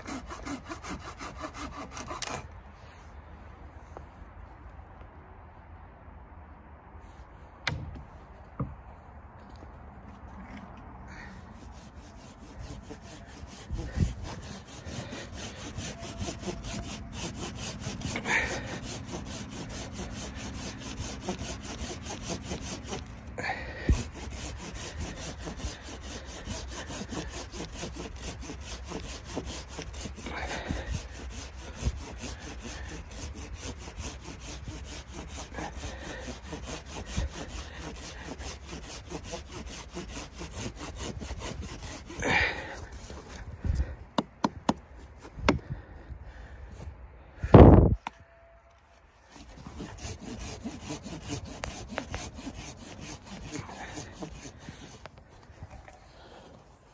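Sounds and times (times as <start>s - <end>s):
hand saw cutting wood: 0.0s - 2.6s, 11.1s - 45.7s, 49.2s - 56.9s.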